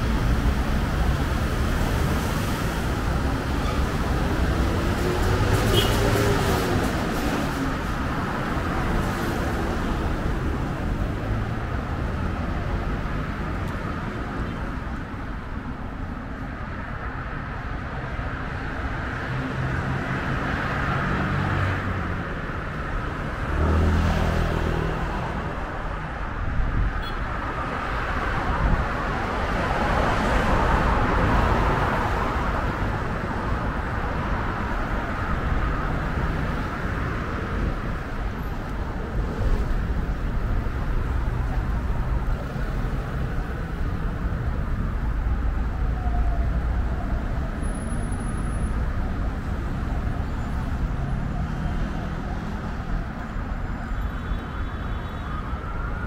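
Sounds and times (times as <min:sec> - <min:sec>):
cars driving past: 0:18.9 - 0:25.8.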